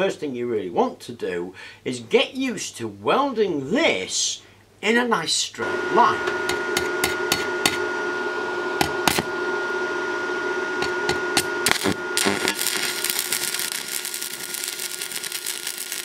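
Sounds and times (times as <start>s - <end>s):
welding arc crackling sizzle: 5.6s - 8.2s, 8.8s - 9.4s, 10.7s - 16.0s
electrical hum: 5.6s - 16.0s
welding rod tapping steel plate: 6.5s - 7.8s, 10.8s - 16.0s.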